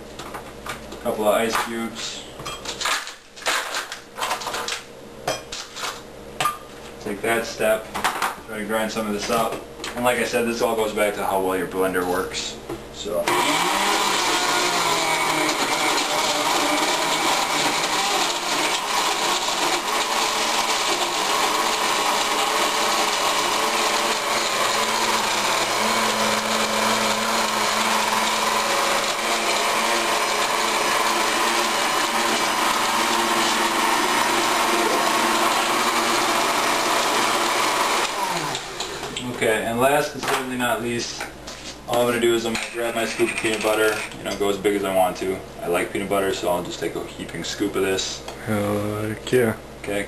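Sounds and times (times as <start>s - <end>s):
blender grinding ice: 13.2s - 39.2s, 42.7s - 44.2s.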